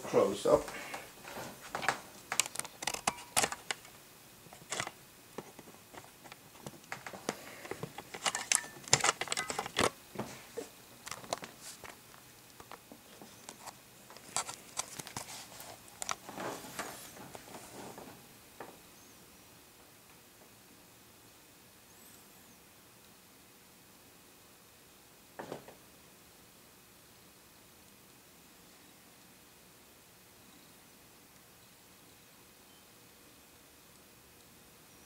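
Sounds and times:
camera handling noise: 2.3 - 3.9, 4.5 - 9.9.

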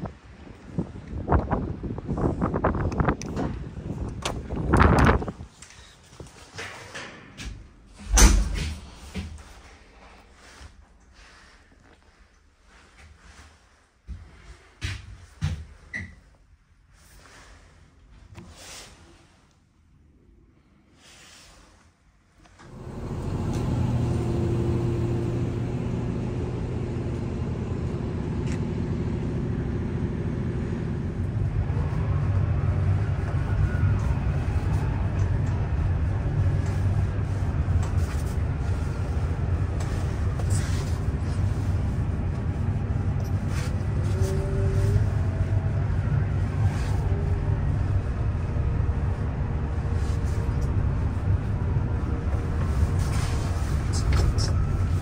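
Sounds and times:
diesel engine running: 22.6 - 55.0.

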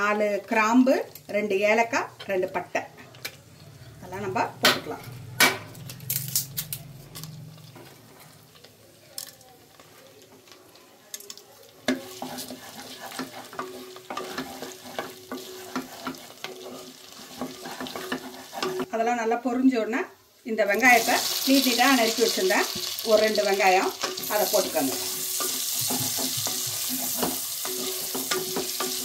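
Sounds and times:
spices sizzling in oil: 9.6 - 29.0
wooden spatula stirring: 11.6 - 18.9, 22.1 - 29.0.

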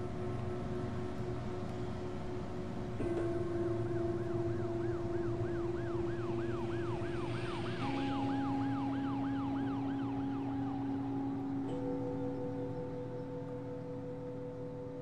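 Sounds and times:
low held music notes: 0.0 - 15.0
siren in a fast yelp: 5.6 - 11.0.

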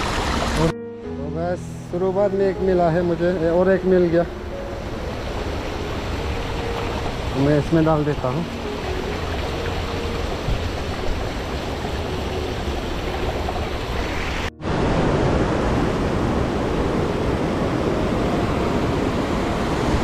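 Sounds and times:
river rushing over boulders: 0.0 - 0.7, 4.8 - 20.0.

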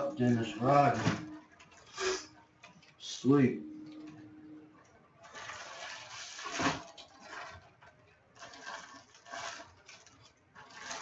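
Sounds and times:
plastic bag crinkling: 5.2 - 11.0.

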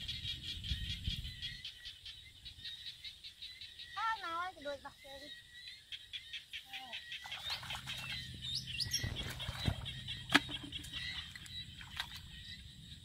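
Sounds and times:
small birds chirping: 0.0 - 13.0
hands sloshing in muddy water: 7.2 - 12.4.

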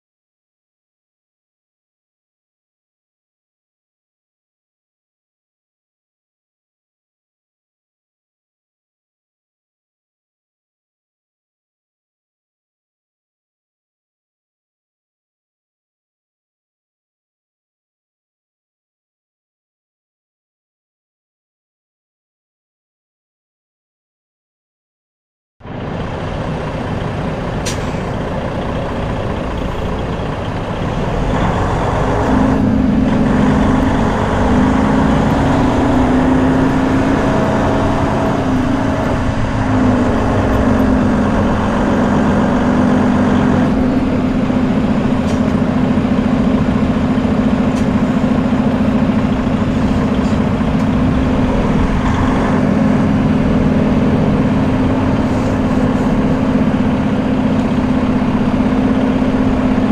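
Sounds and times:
loud road noise: 25.6 - 59.9
truck engine drone: 25.6 - 59.9.

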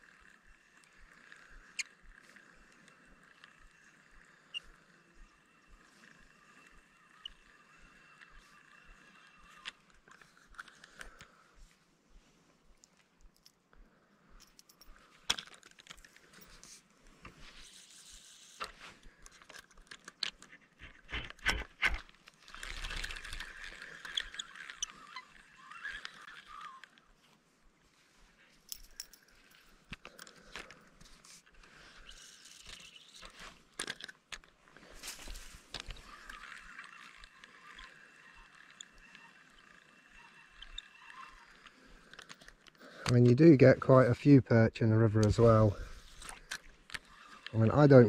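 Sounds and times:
fishing reel clicks and knocks: 0.0 - 11.4, 17.8 - 27.1, 35.2 - 43.4.

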